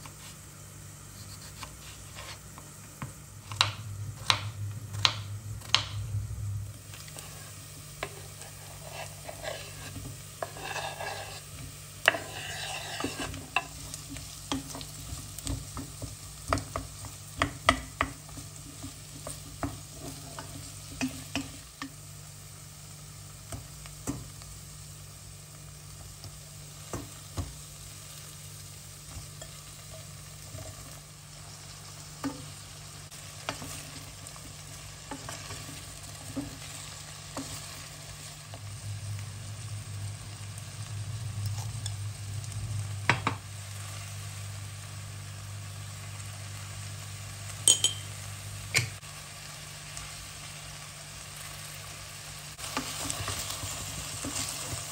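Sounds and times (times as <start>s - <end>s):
onions and potato sizzling: 0.0s - 54.9s
low hum: 3.7s - 7.1s
knocks and scrapes on cutting board: 12.1s - 13.4s.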